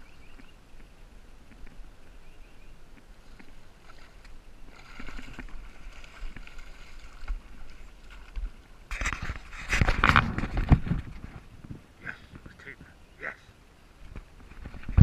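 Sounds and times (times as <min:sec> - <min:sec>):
faint ticks: 0:00.3 - 0:01.8
water splashing: 0:02.8 - 0:11.5.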